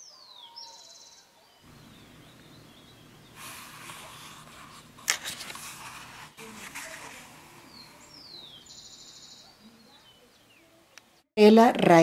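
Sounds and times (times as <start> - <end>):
bird chirping: 0.0 - 5.0, 6.4 - 11.2
book pages rustling: 3.4 - 8.2.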